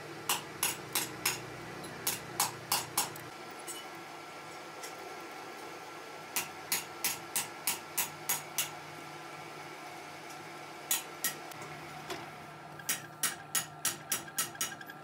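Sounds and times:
metal lathe running: 12.4s - 15.0s.

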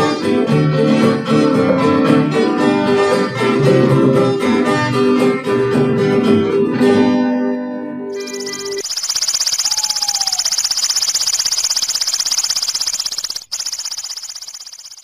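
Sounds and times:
acoustic guitar music: 0.1s - 8.1s
high fast-pulsing buzz: 8.2s - 15.0s.

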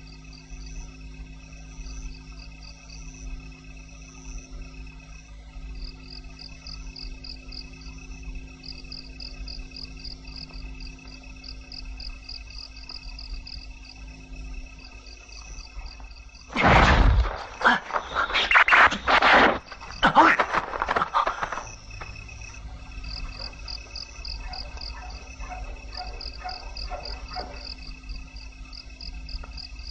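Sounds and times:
crickets chirping: 0.0s - 29.9s
loud crash and hits: 16.5s - 21.1s.

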